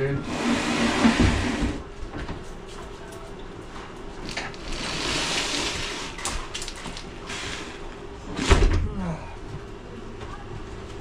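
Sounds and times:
cabinet scraping: 0.0 - 1.9, 4.3 - 6.2.

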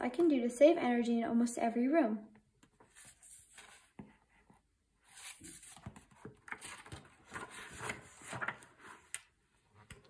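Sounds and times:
book pages rustling and turning: 2.6 - 10.0.

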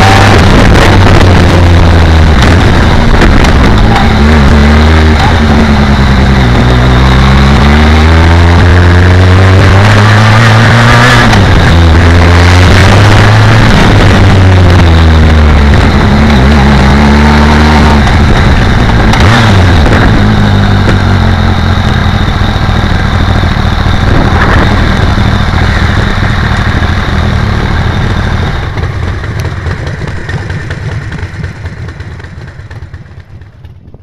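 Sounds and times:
wind rush on microphone: 0.0 - 7.6, 10.5 - 21.4, 22.7 - 30.2, 33.5 - 34.0
motorcycle engine running: 0.0 - 34.0.

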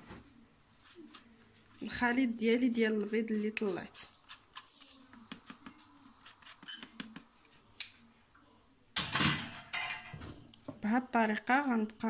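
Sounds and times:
spatula scraping flour through sieve: 0.8 - 6.9.

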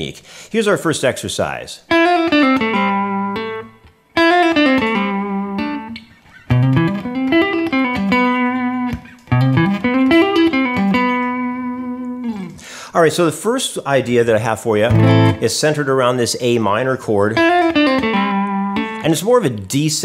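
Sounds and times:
electric guitar legato run: 14.9 - 15.4.

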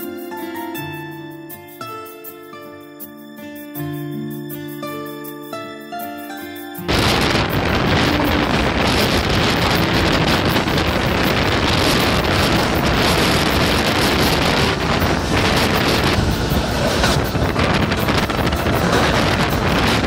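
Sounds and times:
train running on rails: 6.6 - 20.0
wind buffeting microphone: 6.9 - 20.0.

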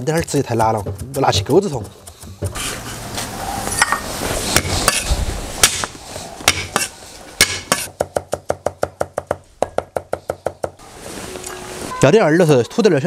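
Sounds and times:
cleaver chopping on wooden block: 5.6 - 10.8.

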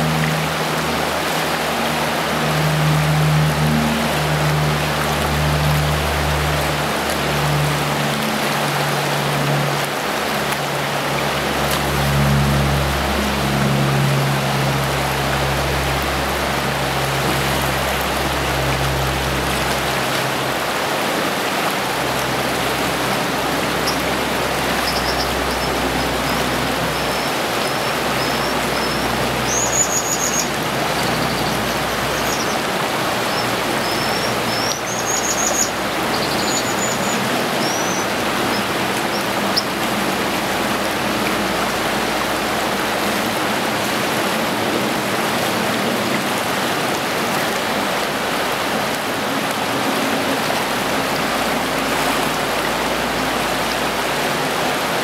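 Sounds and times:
river water rushing: 0.0 - 55.0
high-pitched bird calls: 24.7 - 32.6, 33.3 - 39.7.

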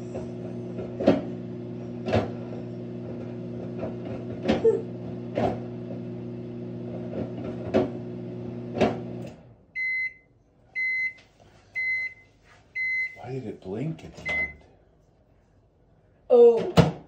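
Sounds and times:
microwave oven humming: 0.0 - 11.2
microwave beeping: 9.8 - 11.2, 11.8 - 13.2, 14.2 - 14.6.

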